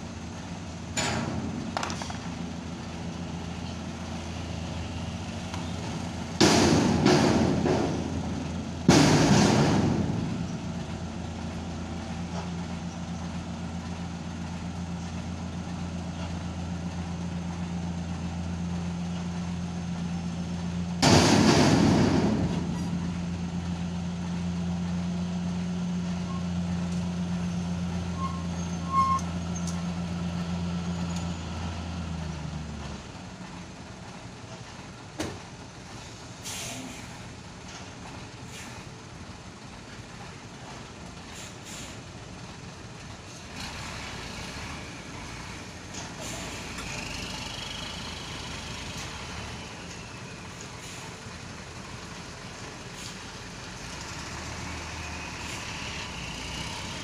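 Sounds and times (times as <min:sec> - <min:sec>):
road noise: 0:00.0 - 0:57.0
truck engine droning: 0:00.0 - 0:57.0
air brakes hissing: 0:36.0 - 0:37.4, 0:38.4 - 0:39.0, 0:41.3 - 0:42.1, 0:46.1 - 0:47.2, 0:49.0 - 0:51.3, 0:52.8 - 0:53.3, 0:55.3 - 0:56.3.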